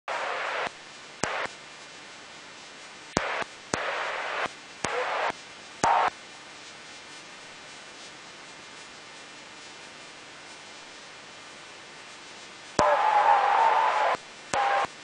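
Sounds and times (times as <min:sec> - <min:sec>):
steady hiss: 0:00.1 - 0:15.0
spectator crowd noise: 0:12.8 - 0:14.8.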